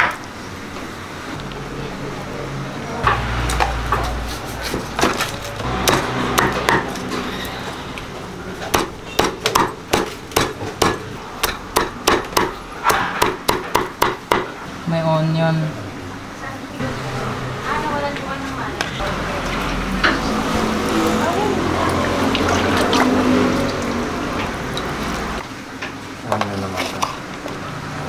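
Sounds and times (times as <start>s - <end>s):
cleaver chopping on wooden board: 5.8s - 6.9s, 8.7s - 14.5s.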